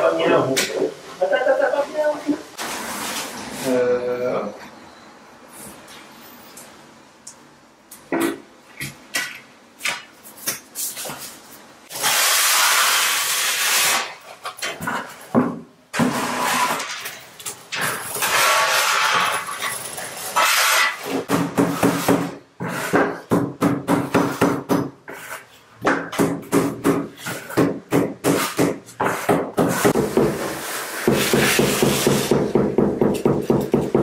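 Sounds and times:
trowel scraping adhesive: 17.9 - 21.2, 28.4 - 32.3.

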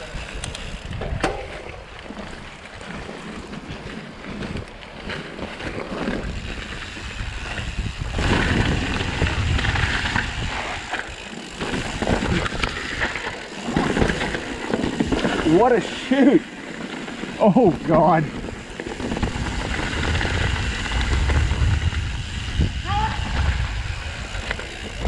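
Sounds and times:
bike rattling over bumps: 0.0 - 25.0
bike tyres rolling over gravel: 0.0 - 25.0
wind on microphone: 5.9 - 11.0, 18.9 - 25.0.

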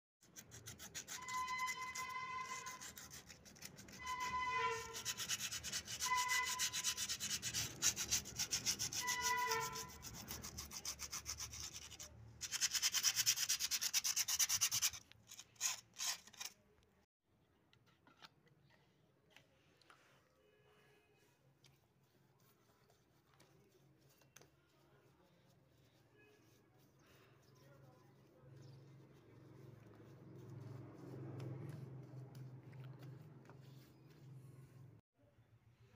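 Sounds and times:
scraping strokes on hard surface: 0.2 - 16.6, 19.8 - 35.0
short squeaks: 1.1 - 2.9, 3.9 - 5.2.

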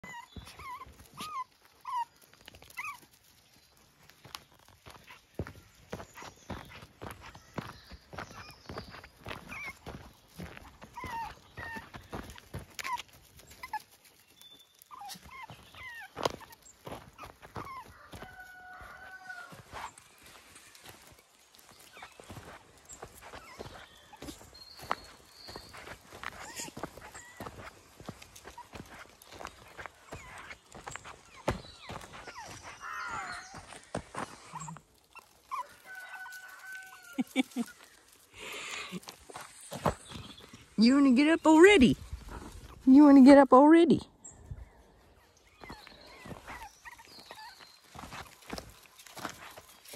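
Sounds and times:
puppy squeaking: 0.0 - 2.1, 9.5 - 9.8, 14.9 - 16.6, 17.2 - 17.9
puppy yipping: 0.0 - 3.2, 8.2 - 19.9, 25.7 - 27.7, 29.8 - 33.8, 34.4 - 37.8, 45.5 - 48.7
footsteps on gravel: 0.0 - 43.6, 45.6 - 49.9.

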